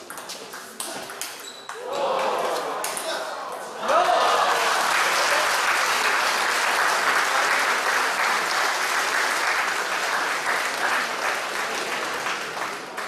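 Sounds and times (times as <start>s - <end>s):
spectators applauding: 3.9s - 13.0s.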